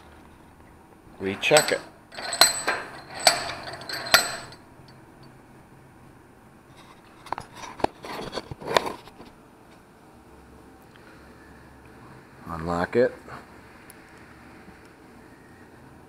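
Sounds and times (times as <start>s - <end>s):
metal tools clinking on workbench: 1.2s - 4.7s.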